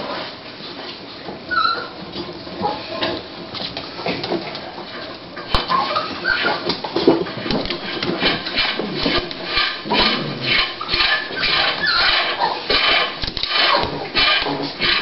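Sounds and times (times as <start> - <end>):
dog whining faintly: 1.5 - 2.0.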